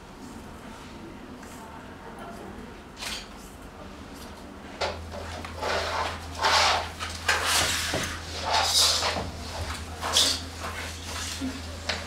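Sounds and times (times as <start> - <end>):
objects rustling and scraping: 4.8 - 12.0.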